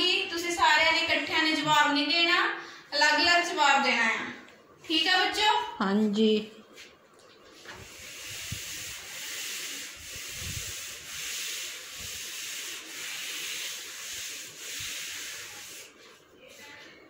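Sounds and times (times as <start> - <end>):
duster wiping chalkboard: 6.8 - 17.0.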